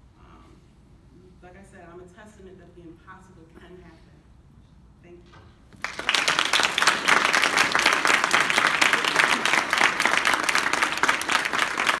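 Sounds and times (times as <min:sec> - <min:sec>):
close hands clapping: 0:05.7 - 0:12.0
audience applauding: 0:05.8 - 0:12.0.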